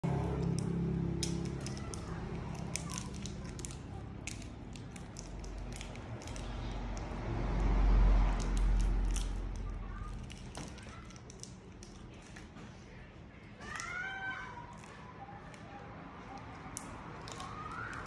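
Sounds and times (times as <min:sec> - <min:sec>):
plastic candy wrapper crinkling: 0:00.1 - 0:06.8, 0:08.4 - 0:12.4, 0:16.3 - 0:18.0.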